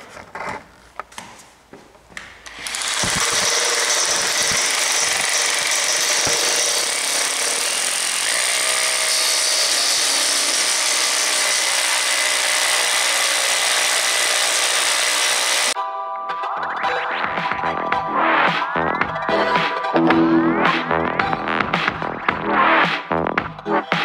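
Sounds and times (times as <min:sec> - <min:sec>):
hammer drill boring into concrete: 0:02.4 - 0:15.8.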